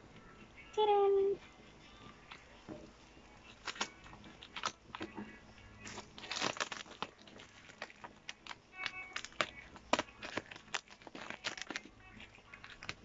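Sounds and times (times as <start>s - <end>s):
plastic crinkling: 3.4s - 13.0s
scissors snipping plastic: 3.5s - 5.2s, 5.8s - 13.0s.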